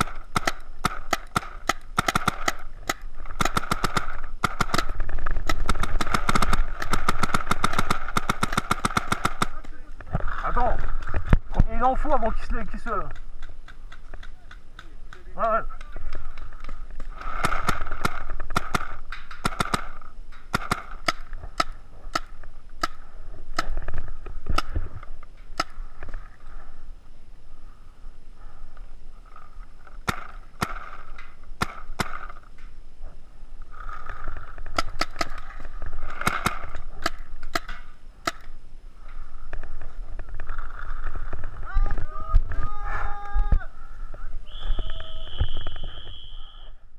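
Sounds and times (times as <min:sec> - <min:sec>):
paintball markers popping: 0:13.0 - 0:19.9.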